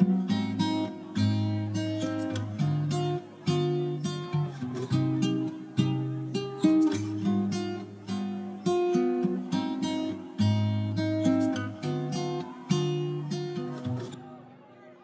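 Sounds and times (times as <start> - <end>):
acoustic guitar strumming and plucking: 0.0 - 14.2.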